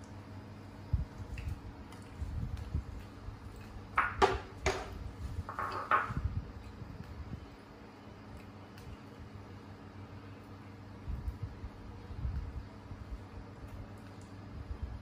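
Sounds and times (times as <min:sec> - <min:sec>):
crackles and rustles of food: 0:00.0 - 0:15.0.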